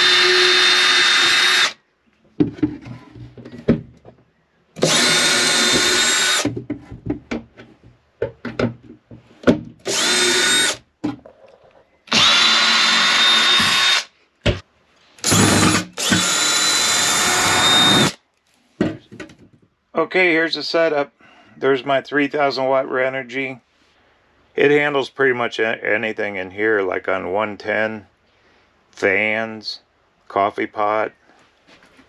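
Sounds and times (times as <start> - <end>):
cordless drill running: 0.0 - 1.8, 4.8 - 6.5, 9.8 - 10.8, 12.1 - 14.1, 15.2 - 18.2.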